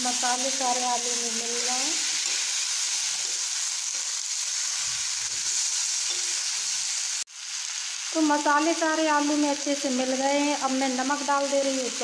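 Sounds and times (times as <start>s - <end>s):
potatoes sizzling in oil: 0.0s - 12.0s
spatula stirring in pan: 1.5s - 6.8s.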